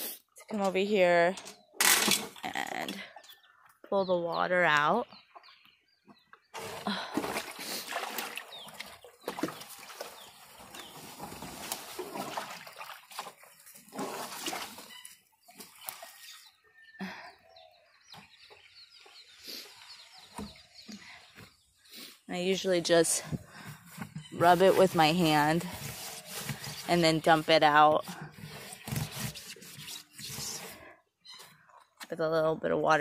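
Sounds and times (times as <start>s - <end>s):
water sloshing in plastic tub: 6.6s - 16.4s.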